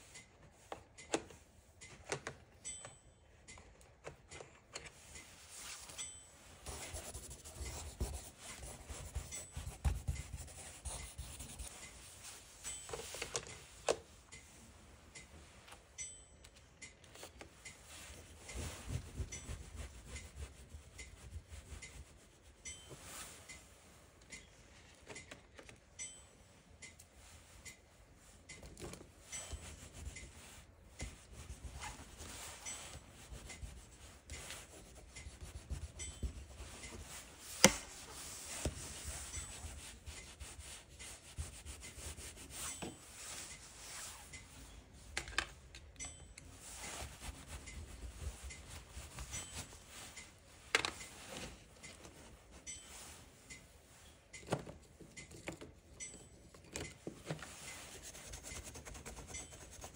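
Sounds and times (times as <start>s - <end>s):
drawing stick scraping paper: 6.6s - 12.8s, 57.9s - 59.9s.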